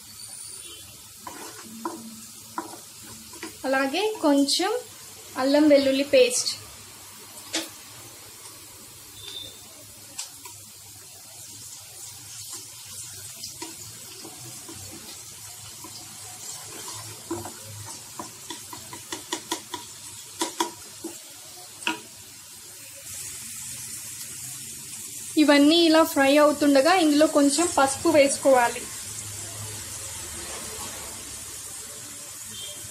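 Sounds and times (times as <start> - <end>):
onions sizzling in hot oil: 0.0 - 32.9
spatula tapping and scraping a pan: 1.2 - 4.4, 13.4 - 22.1.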